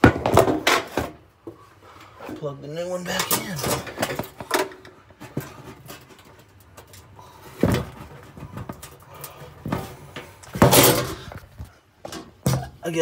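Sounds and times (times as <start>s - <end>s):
clicks and scrapes in metal oven: 3.1s - 7.1s.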